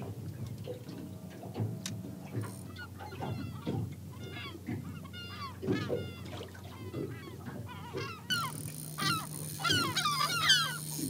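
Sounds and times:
gulls squawking: 0:02.3 - 0:11.0.

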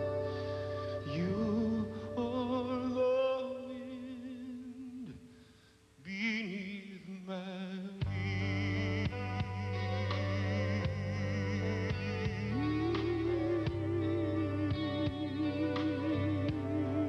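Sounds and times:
soft band accompaniment: 0:00.0 - 0:03.7, 0:08.0 - 0:17.0
man singing a slow ballad: 0:00.0 - 0:05.3, 0:06.0 - 0:17.0.

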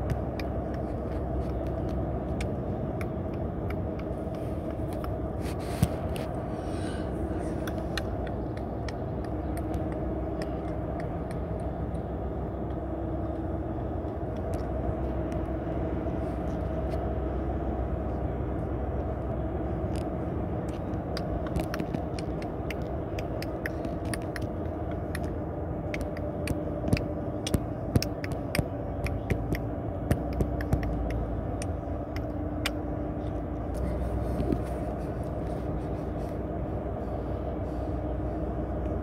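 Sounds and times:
car road noise and engine hum: 0:00.0 - 0:39.0.

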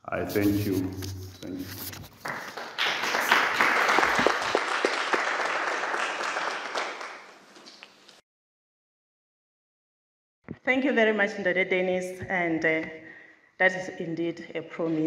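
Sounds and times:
audience applauding: 0:02.1 - 0:07.8.

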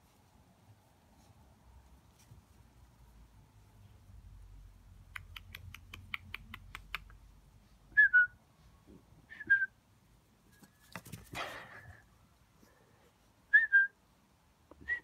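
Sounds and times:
sharp clicks: 0:05.1 - 0:07.2.

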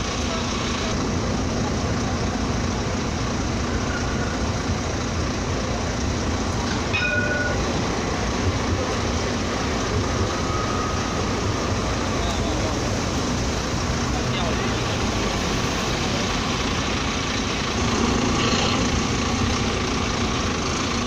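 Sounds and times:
road traffic: 0:00.0 - 0:21.0
tram rumbling past: 0:00.0 - 0:21.0
short high tone: 0:06.9 - 0:07.6.

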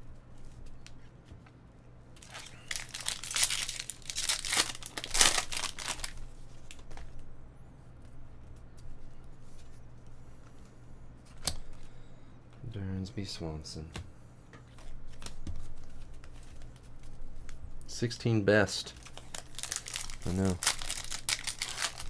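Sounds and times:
plastic wrapper tearing and crinkling: 0:02.2 - 0:07.0, 0:19.0 - 0:22.0.

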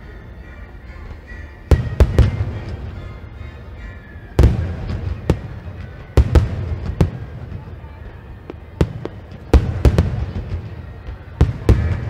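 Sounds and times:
firework shells booming: 0:01.7 - 0:03.0, 0:04.4 - 0:07.8, 0:08.5 - 0:12.0
rumbling echo: 0:01.7 - 0:03.7, 0:04.3 - 0:12.0.

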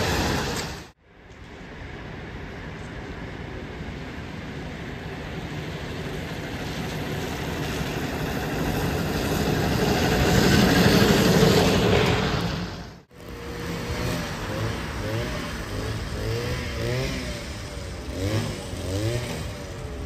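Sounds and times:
trolleybus tyres hissing on wet street: 0:00.0 - 0:01.0, 0:01.6 - 0:16.4.

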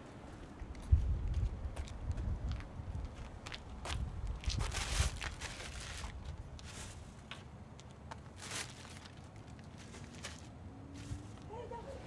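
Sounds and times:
footsteps on pavement: 0:00.2 - 0:11.2
wind rumble on microphone: 0:00.5 - 0:07.1.

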